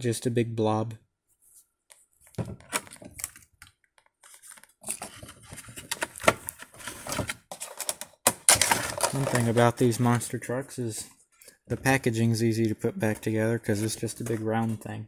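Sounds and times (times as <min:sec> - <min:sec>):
plastic crinkling: 0:08.6 - 0:09.7.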